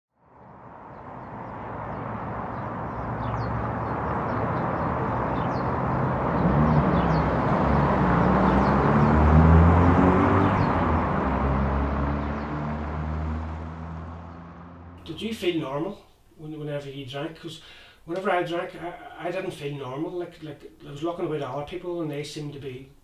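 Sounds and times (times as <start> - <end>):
distant traffic: 0.2 - 15.6
low engine hum: 0.4 - 15.0
small birds chirping: 0.9 - 9.4, 12.1 - 12.8.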